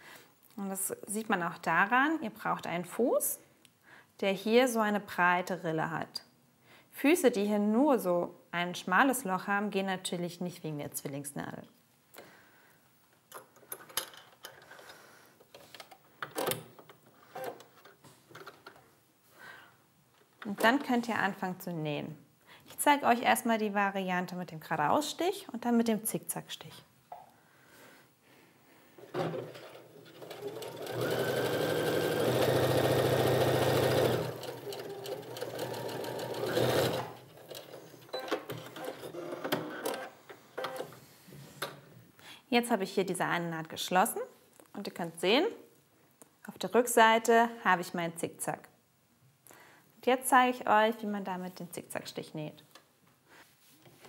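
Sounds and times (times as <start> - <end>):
sewing machine running: 30.2 - 37.6.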